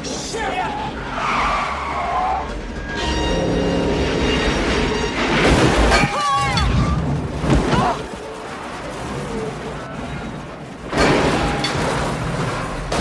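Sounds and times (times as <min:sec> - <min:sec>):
action film music: 0:00.0 - 0:13.0
vehicle crash and grinding: 0:03.8 - 0:13.0.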